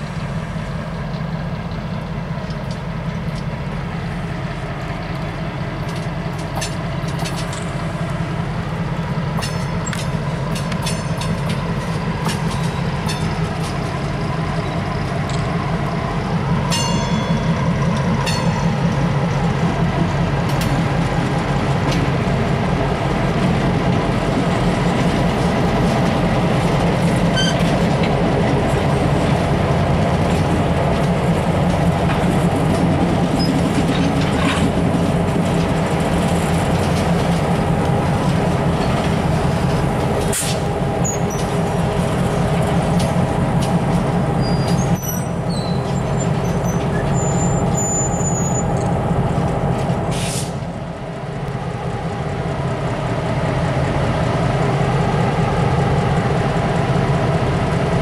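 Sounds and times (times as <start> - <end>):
diesel locomotive engine running: 0.0 - 58.0
freight cars rolling on rails: 0.0 - 58.0
short air hisses: 50.1 - 50.6.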